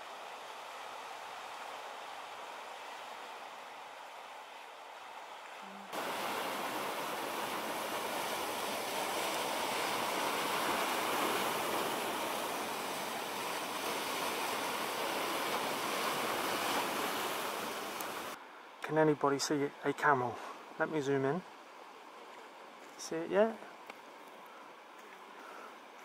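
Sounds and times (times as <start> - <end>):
sea surf rushing: 5.6 - 18.4.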